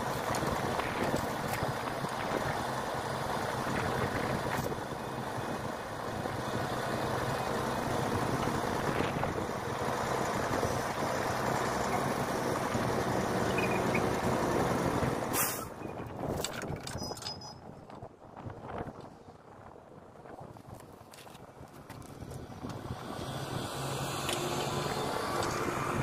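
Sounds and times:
diesel truck engine running: 0:00.0 - 0:16.3, 0:22.2 - 0:26.0
air brakes hissing: 0:15.3 - 0:15.8.

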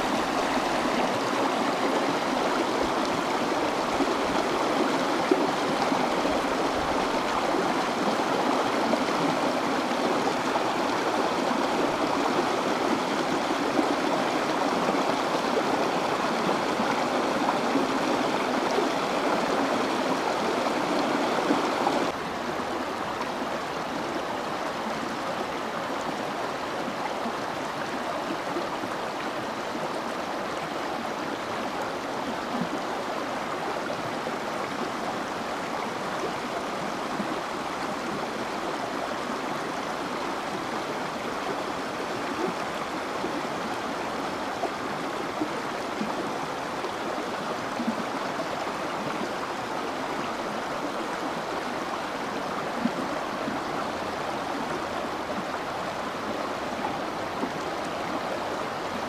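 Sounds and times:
stream rushing over stones: 0:00.0 - 0:59.0.

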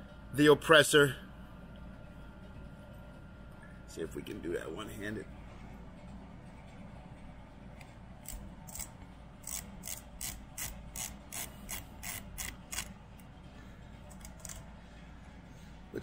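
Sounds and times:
sharp ratcheting clicks: 0:08.2 - 0:12.9.

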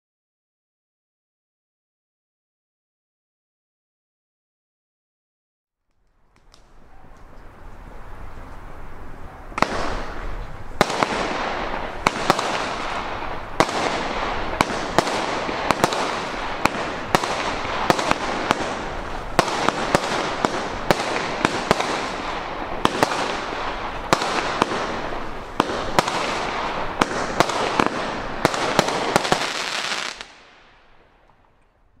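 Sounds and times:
firework crackling hiss: 0:06.3 - 0:31.0
firework bangs: 0:06.4 - 0:31.3.

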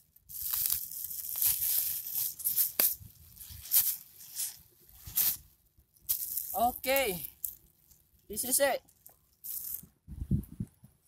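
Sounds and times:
plastic bag crinkling: 0:00.2 - 0:05.5.

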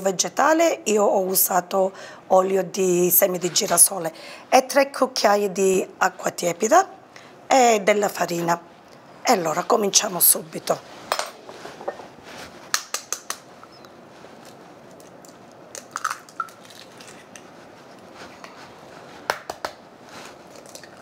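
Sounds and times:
eggshells cracking: 0:14.4 - 0:17.5.

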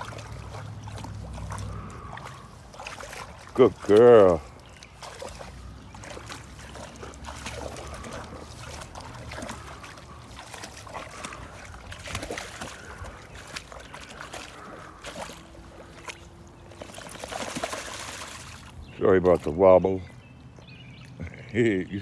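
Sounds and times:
water sloshing and splashing: 0:00.0 - 0:22.0.

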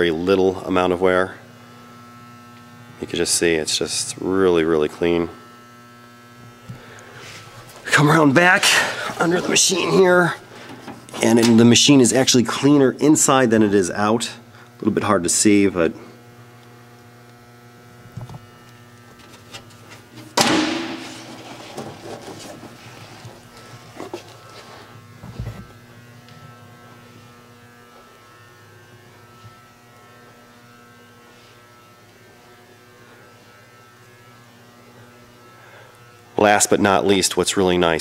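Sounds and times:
low electrical hum: 0:00.0 - 0:38.0
loud thump: 0:20.4 - 0:21.3.

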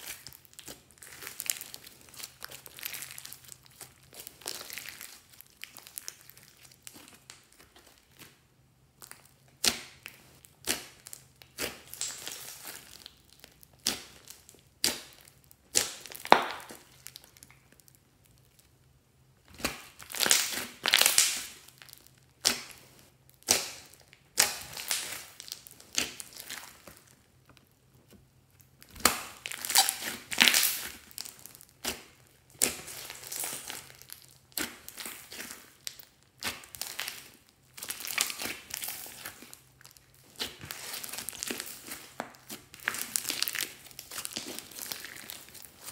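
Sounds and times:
slime squishing: 0:00.0 - 0:45.9.

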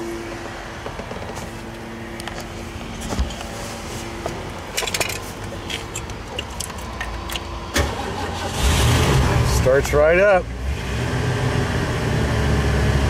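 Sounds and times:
keys jangling: 0:04.7 - 0:07.5.

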